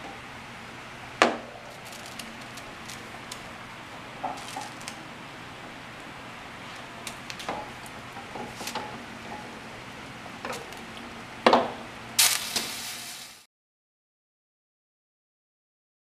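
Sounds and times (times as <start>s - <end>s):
low steady hiss: 9.8s - 13.5s.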